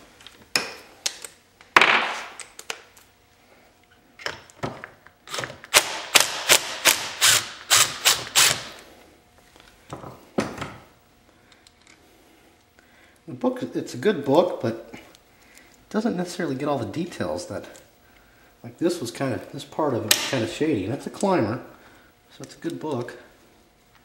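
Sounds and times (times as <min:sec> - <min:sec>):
impact wrench bursts: 0:05.3 - 0:08.8.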